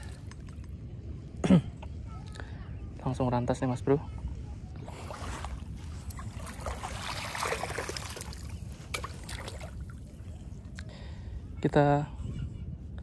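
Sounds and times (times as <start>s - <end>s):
shallow seawater splashing: 4.8s - 10.0s.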